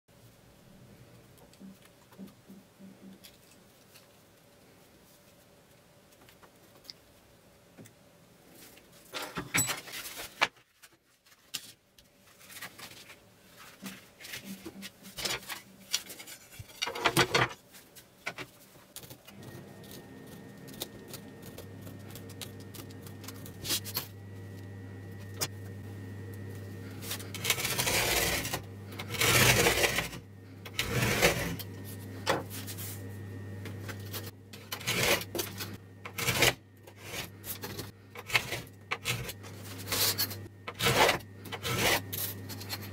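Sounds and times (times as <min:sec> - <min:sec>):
rustles taps and scrapes: 0:08.5 - 0:24.2
steady low hum: 0:17.6 - 0:42.9.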